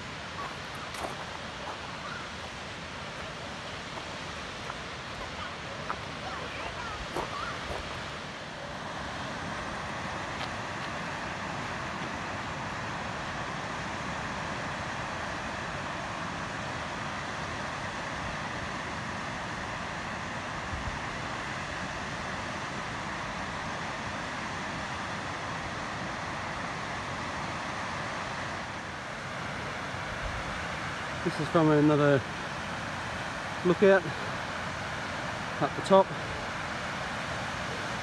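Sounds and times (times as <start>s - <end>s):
water rushing over rocks: 0.0s - 17.2s, 27.8s - 38.0s.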